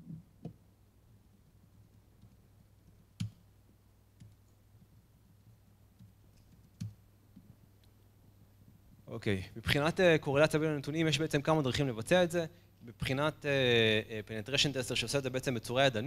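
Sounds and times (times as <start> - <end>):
faint room hum: 0.0 - 16.0
laptop clicks and taps: 1.8 - 3.4, 6.0 - 7.5.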